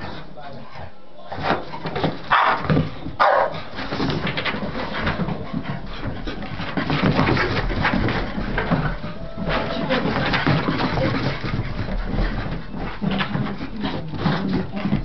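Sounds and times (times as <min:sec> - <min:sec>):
dogs grunting and scuffling: 0:00.0 - 0:15.0
dogs barking: 0:02.3 - 0:03.7.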